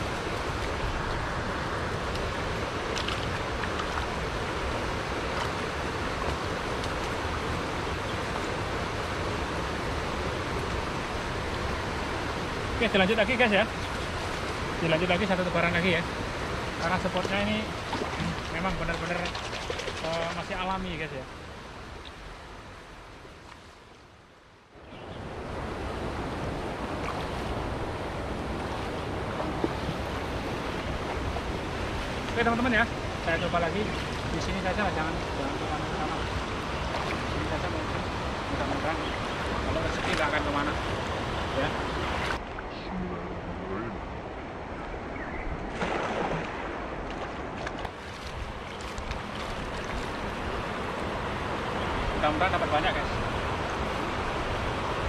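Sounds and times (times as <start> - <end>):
river flowing: 0.0 - 55.0
wind buffeting microphone: 24.8 - 42.4.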